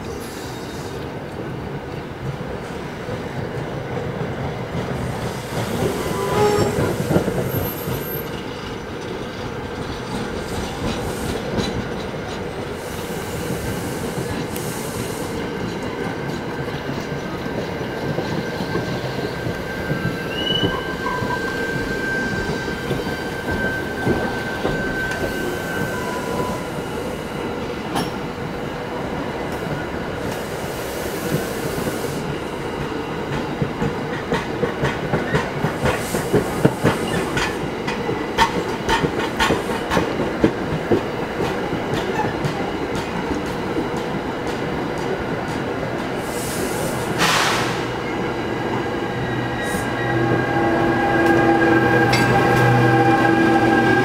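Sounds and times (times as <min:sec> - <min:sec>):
train wheels rumbling over rail joints: 0:01.9 - 0:26.0, 0:32.2 - 0:54.0
high wheel squeal: 0:05.4 - 0:08.7, 0:18.6 - 0:26.8.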